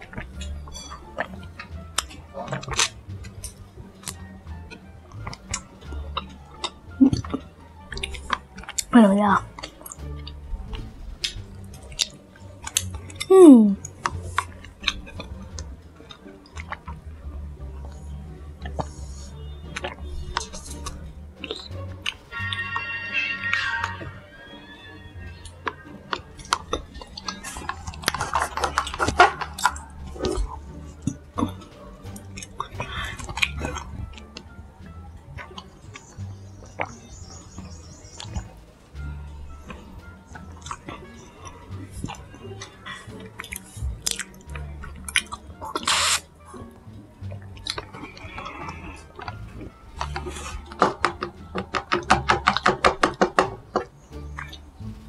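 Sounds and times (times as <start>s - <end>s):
sucking slurp through straw: 45.1s - 46.3s, 47.3s - 49.4s
sipping through straw: 45.7s - 46.3s
fast clicking taps: 50.8s - 53.9s.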